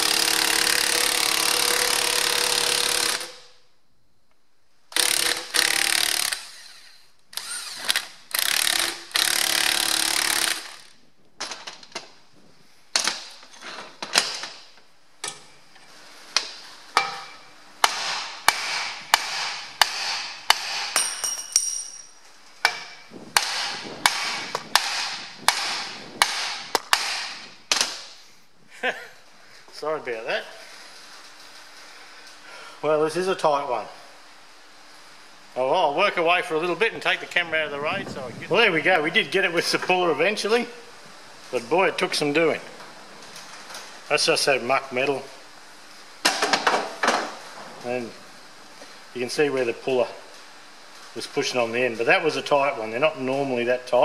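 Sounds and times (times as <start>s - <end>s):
impact wrench hammering: 17.0s - 22.0s, 22.6s - 28.1s
sharp metallic knocks: 22.6s - 27.8s.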